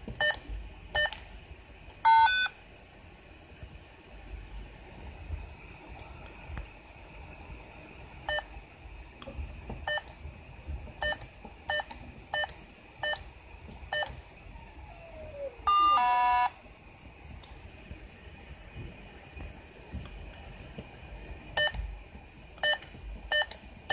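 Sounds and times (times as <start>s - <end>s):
keypad beeps: 2.1s - 2.5s, 11.0s - 13.2s, 15.7s - 16.5s
two-tone beep: 2.1s - 2.5s.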